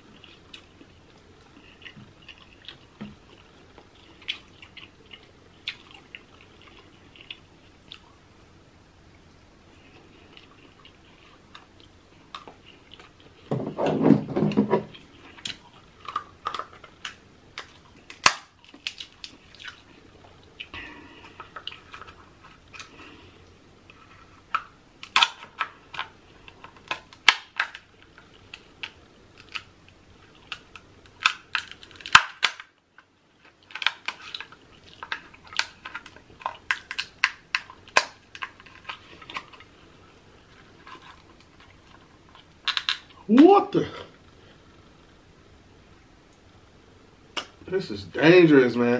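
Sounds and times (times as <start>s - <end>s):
shears cracking crab shell: 15.4s - 19.8s, 24.5s - 27.9s, 30.4s - 39.7s.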